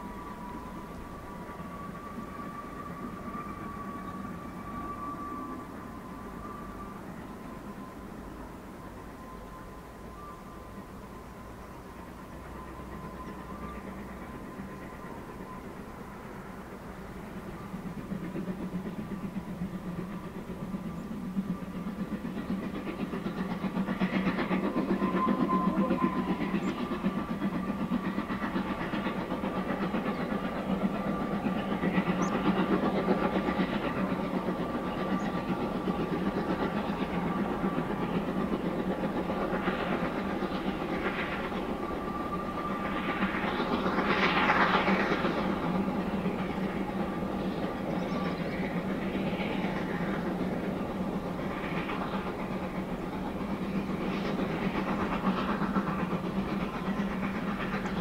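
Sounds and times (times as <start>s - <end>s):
steam train running: 0.0s - 58.0s.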